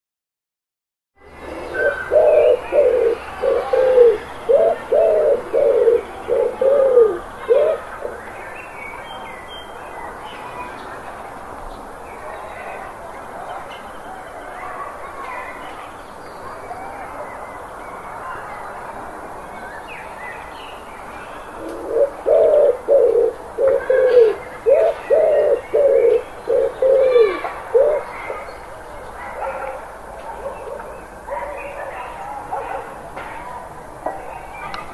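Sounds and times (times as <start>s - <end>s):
pigeons cooing: 1.3s - 8.2s, 21.6s - 28.5s, 30.4s - 31.6s
other birds chirping: 1.3s - 11.0s, 19.7s - 32.8s.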